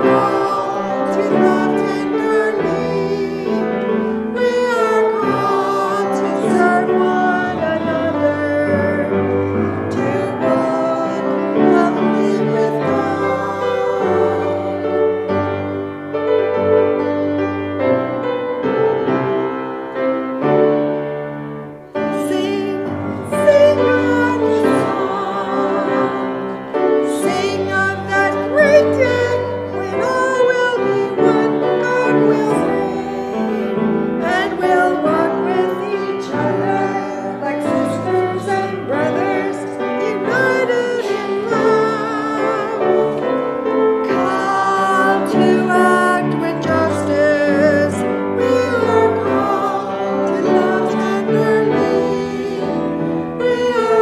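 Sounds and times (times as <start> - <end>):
keyboard chords: 0.0 - 54.0
woman singing with vibrato: 27.0 - 43.2.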